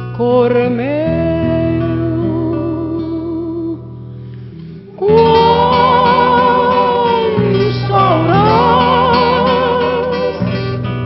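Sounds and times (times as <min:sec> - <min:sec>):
person singing long notes: 0:05.0 - 0:10.8.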